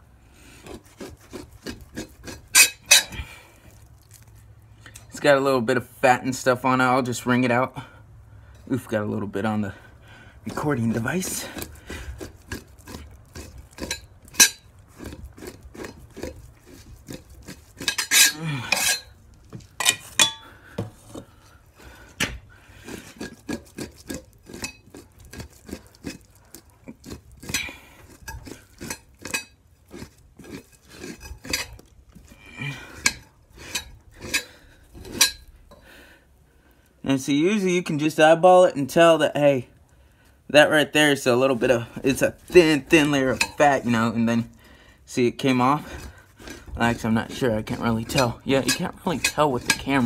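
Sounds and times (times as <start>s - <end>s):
knife scraping hide: 0.4s - 4.4s, 10.4s - 35.8s, 40.6s - 50.0s.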